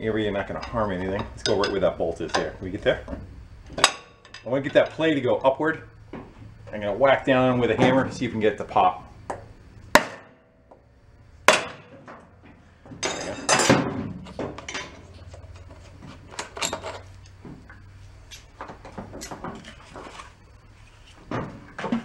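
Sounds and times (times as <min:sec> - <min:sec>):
clatter of metal and plastic: 0:13.0 - 0:17.1.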